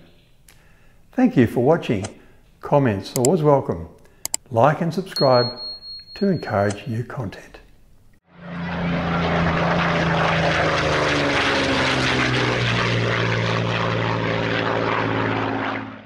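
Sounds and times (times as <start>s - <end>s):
propeller aircraft engine droning: 8.2s - 16.0s.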